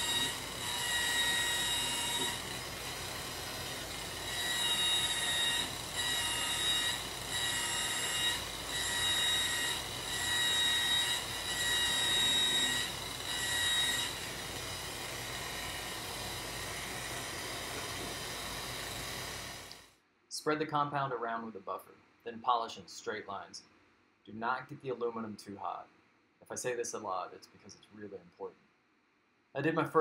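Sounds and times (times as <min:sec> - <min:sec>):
rotary buffer whining on metal: 0:00.0 - 0:19.9.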